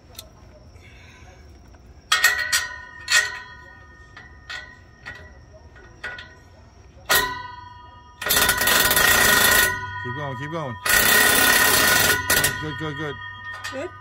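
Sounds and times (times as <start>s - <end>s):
metal ringing: 2.0s - 14.0s
impact wrench hammering bursts: 8.2s - 13.8s.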